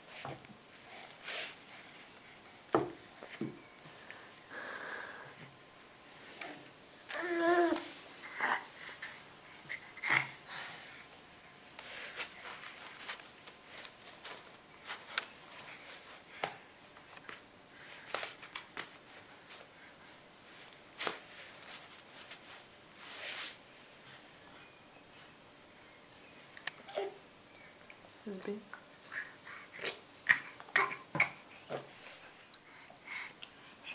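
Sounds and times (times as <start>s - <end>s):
rustling and crackling on foam mat: 11.2s - 24.3s.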